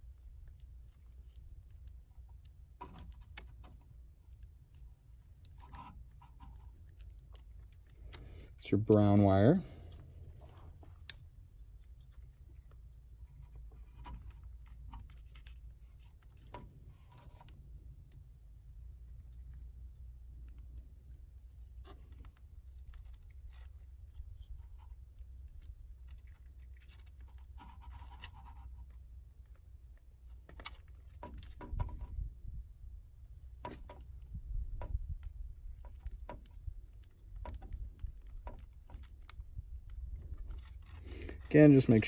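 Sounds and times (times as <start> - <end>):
wind rumble on microphone: 31.6 - 33.2, 34.1 - 38.6.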